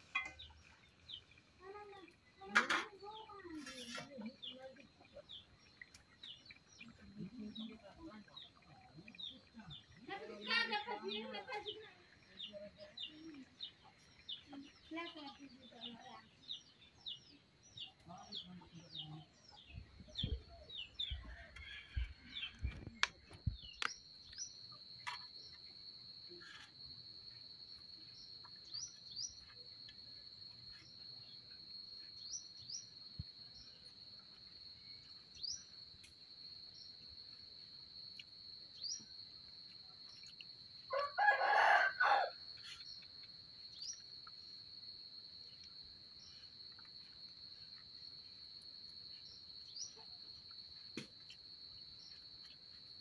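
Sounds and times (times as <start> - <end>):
insect drone: 23.3 - 53.0
bird chirps: 28.0 - 29.8
rooster crowing: 40.9 - 42.4.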